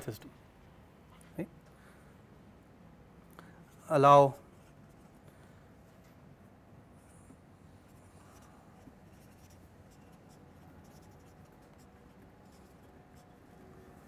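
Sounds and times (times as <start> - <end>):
pen scratching on paper: 7.9 - 13.4.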